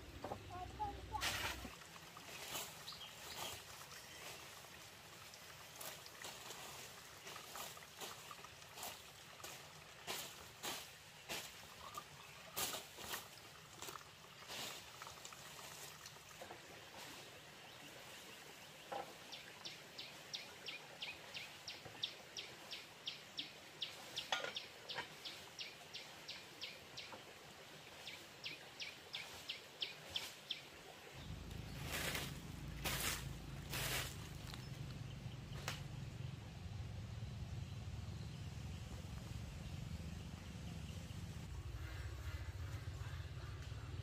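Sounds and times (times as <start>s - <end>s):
water splashing in basin and pot: 0.0s - 17.4s.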